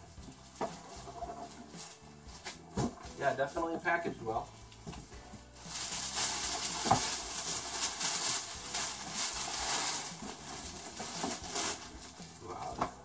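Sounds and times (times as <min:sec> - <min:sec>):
tissue paper rustling: 0:04.2 - 0:13.0.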